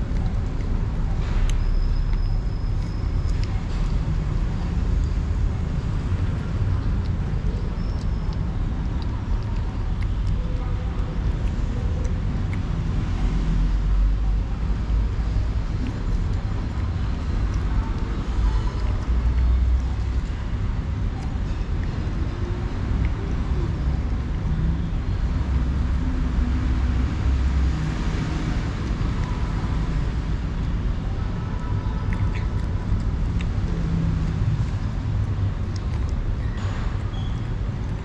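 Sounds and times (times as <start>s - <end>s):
cat chewing and lapping: 0.0s - 38.0s
street traffic rumble: 0.0s - 38.0s.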